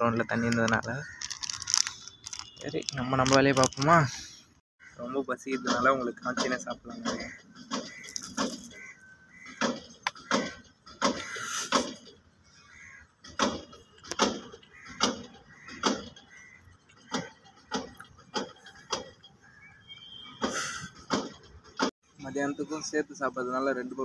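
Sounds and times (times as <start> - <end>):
person chewing crunchy pastry: 1.1 - 4.0.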